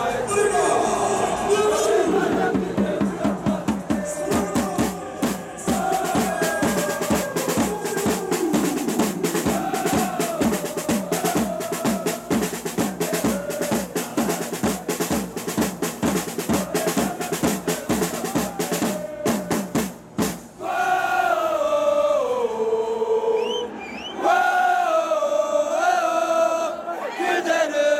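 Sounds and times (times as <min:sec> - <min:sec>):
crowd singing a chant: 0:00.0 - 0:19.9, 0:20.6 - 0:27.9
snare and bass drums beating: 0:02.2 - 0:20.6.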